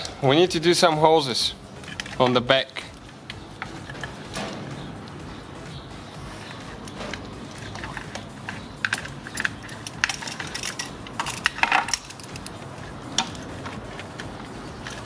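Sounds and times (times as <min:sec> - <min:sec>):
metal pliers clicking: 0:06.8 - 0:12.6.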